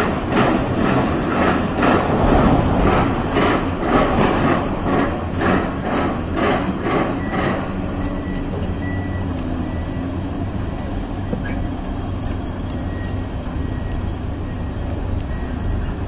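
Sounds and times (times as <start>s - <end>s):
rhythmic pulsing noise: 0.0s - 8.0s
diesel engine droning: 0.0s - 16.0s.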